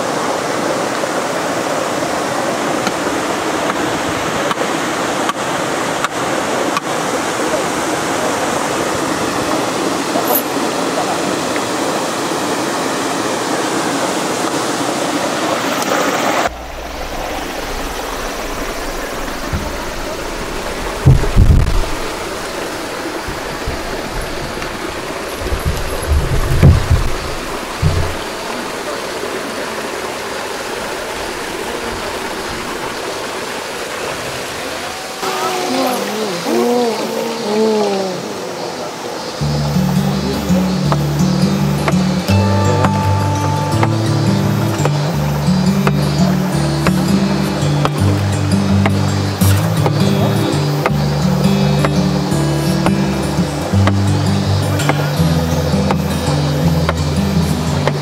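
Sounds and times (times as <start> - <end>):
cascading water rushing: 0.0 - 58.0
dull low thumps: 16.5 - 28.5.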